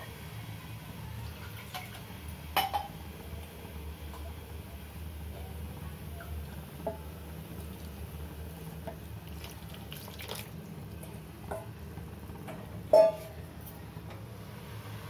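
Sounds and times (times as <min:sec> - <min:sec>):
bowl knocking against pot: 0:12.9 - 0:13.3.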